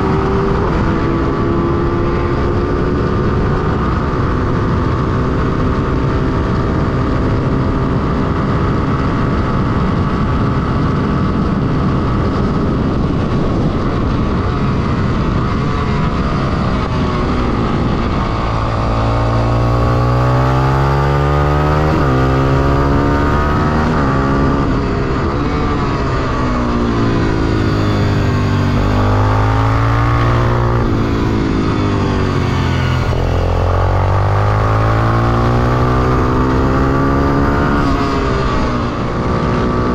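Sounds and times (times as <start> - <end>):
motorcycle engine revving: 0.0 - 39.9
wind rush: 0.0 - 39.9.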